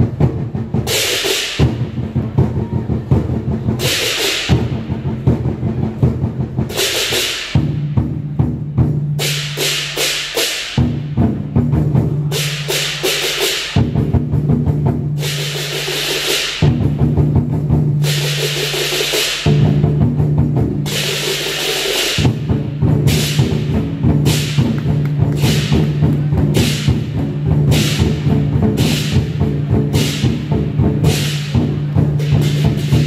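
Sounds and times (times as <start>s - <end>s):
cymbals crashing: 0.0s - 2.3s, 3.2s - 14.2s, 15.2s - 33.0s
large drums rolling: 0.0s - 6.9s, 19.4s - 33.0s.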